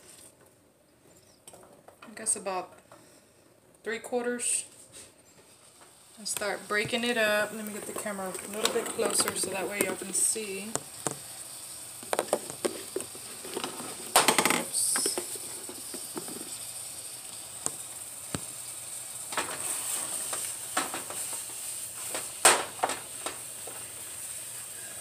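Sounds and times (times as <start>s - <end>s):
meat sizzling in a frying pan: 5.5s - 25.0s
utensil clatter: 6.4s - 11.3s, 12.0s - 16.6s.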